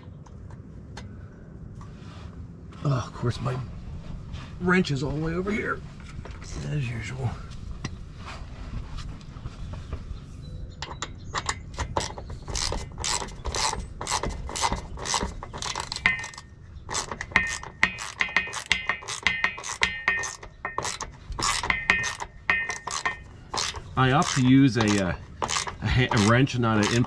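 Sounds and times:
wrench clicking: 10.8s - 27.0s.

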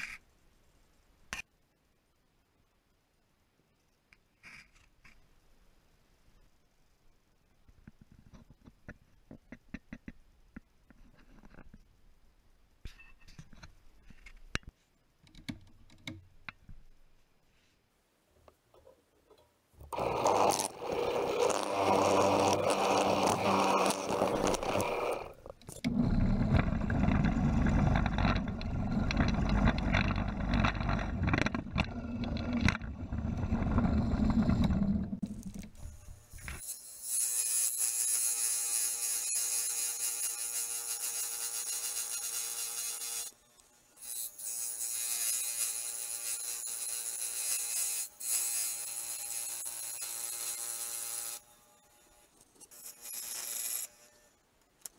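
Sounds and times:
drill press boring wood: 19.9s - 37.4s
scroll saw cutting wood: 19.9s - 43.4s, 44.0s - 54.2s.

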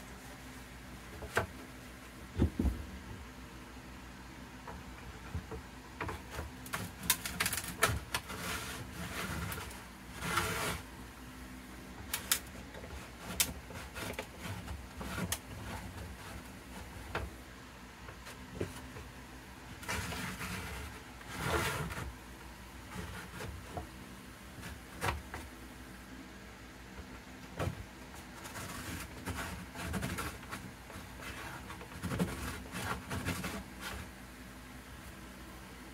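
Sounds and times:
wooden block scraping on wood: 4.7s - 11.0s, 12.0s - 17.4s, 18.0s - 25.5s, 27.5s - 34.2s.

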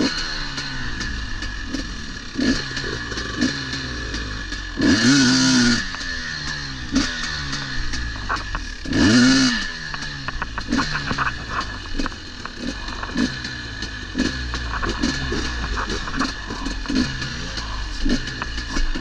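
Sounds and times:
dirt bike engine revving: 0.0s - 19.0s
clicks and knocks from bike: 5.8s - 19.0s.

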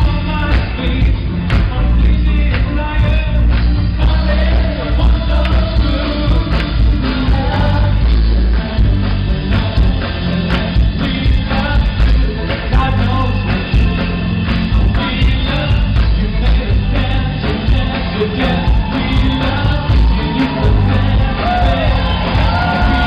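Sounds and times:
heavy bass: 0.0s - 23.0s
person singing: 0.0s - 23.0s.

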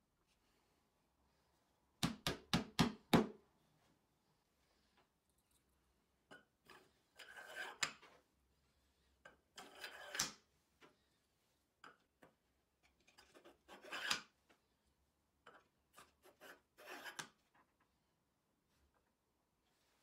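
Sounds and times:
metal bearing scraping on rods: 6.6s - 8.0s, 9.3s - 10.2s.

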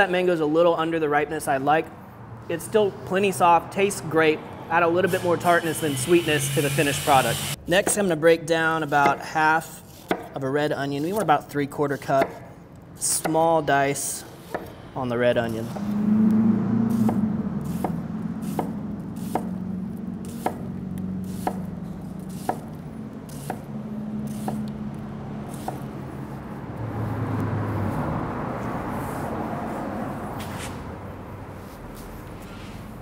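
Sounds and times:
knife scraping board: 8.8s - 12.4s, 25.5s - 25.9s.

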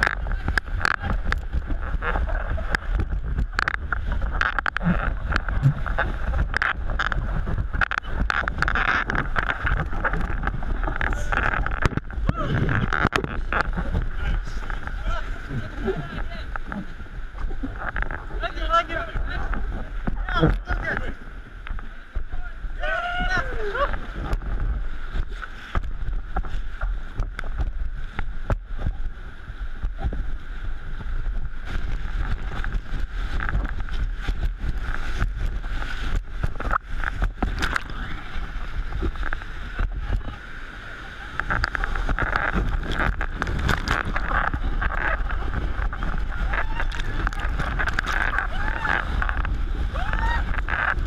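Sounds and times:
wind buffeting microphone: 0.0s - 51.0s
whitewater rapids rushing: 31.2s - 51.0s
splashes and knocks: 31.3s - 40.3s, 41.4s - 49.8s.

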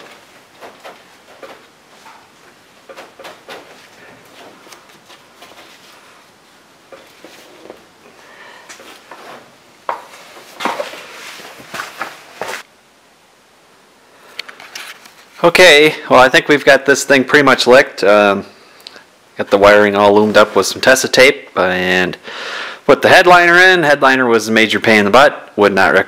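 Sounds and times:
rustling of headliner: 8.8s - 12.7s.

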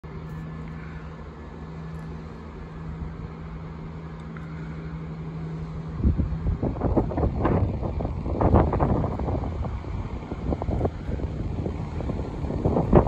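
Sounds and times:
distant diesel train engine drone: 0.0s - 13.0s
wind buffeting microphone: 5.7s - 13.0s.

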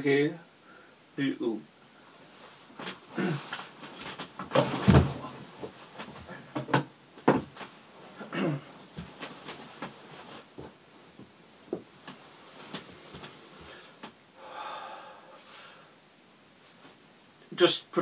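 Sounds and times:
clothing rustle: 2.0s - 14.2s, 16.5s - 17.4s
armchair knocks and creaks: 2.8s - 7.8s.

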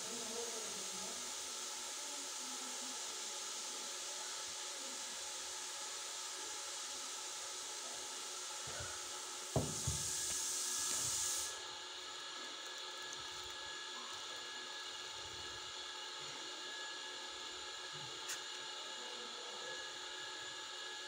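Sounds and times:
louder hiss: 9.5s - 11.6s
book knocking on a table: 9.6s - 10.1s.

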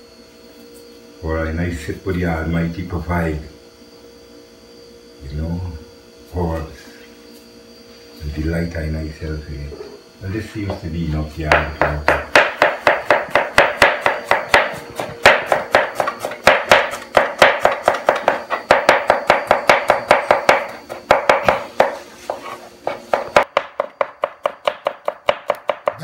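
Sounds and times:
cleaver chopping on cutting board: 11.5s - 26.0s.

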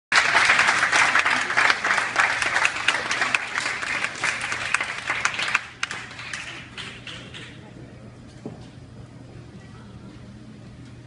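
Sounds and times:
audience applauding: 0.1s - 7.0s.

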